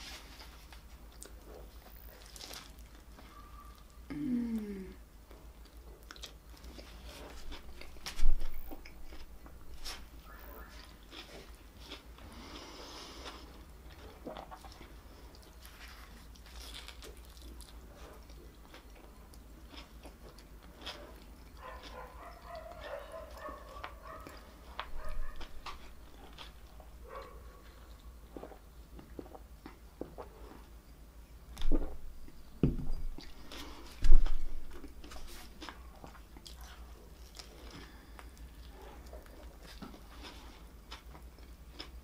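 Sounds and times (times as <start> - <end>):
biting and chewing: 1.1 - 3.9, 5.6 - 30.7
hummed moan of pleasure: 4.1 - 5.1.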